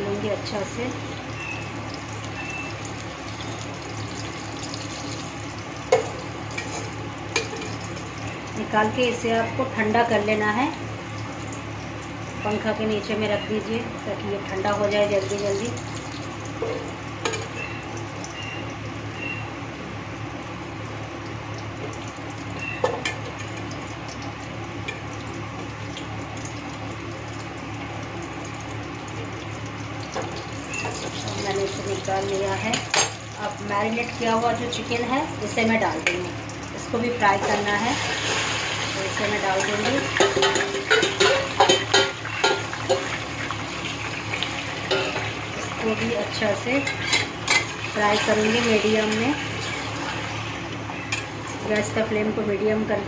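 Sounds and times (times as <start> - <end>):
hot oil sizzling in a pot: 0.0 - 53.0
utensil clinking on metal pot: 39.6 - 43.1.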